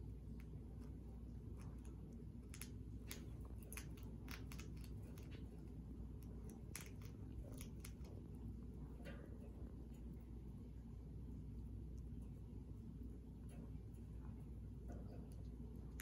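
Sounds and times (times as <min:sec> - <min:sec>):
hedgehog crunching food: 0:01.5 - 0:05.5, 0:06.2 - 0:08.3.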